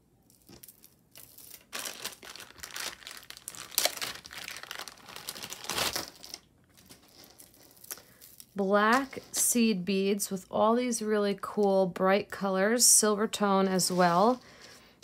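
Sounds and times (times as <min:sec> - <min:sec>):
plastic bag crinkling: 0:00.2 - 0:09.4.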